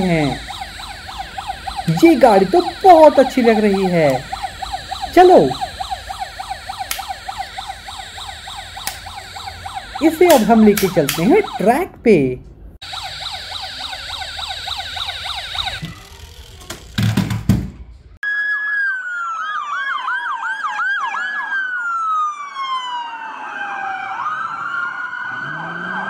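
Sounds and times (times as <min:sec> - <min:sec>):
falling siren wail: 0:00.0 - 0:11.8, 0:12.8 - 0:16.3, 0:18.2 - 0:26.0
toy siren whooping: 0:00.0 - 0:11.8, 0:12.8 - 0:16.6, 0:18.2 - 0:26.0.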